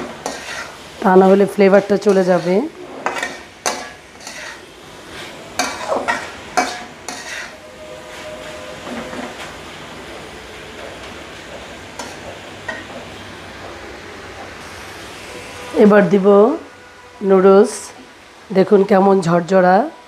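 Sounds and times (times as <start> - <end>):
spatula scraping a wok: 0.0 - 9.6, 11.9 - 12.9
vegetables sizzling: 0.0 - 19.9.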